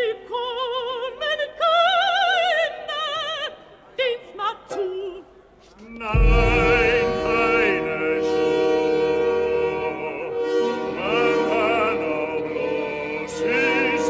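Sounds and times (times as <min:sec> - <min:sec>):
soprano singing with vibrato: 0:00.0 - 0:05.3
orchestra playing: 0:06.2 - 0:08.4.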